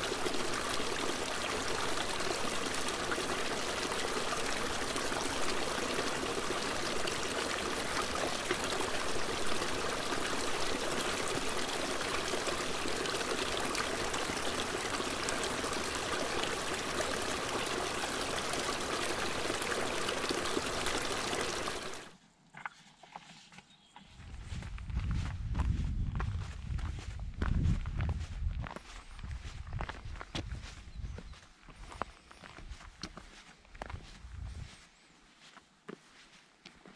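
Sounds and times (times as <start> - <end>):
stream splashing over rocks: 0.0 - 22.1.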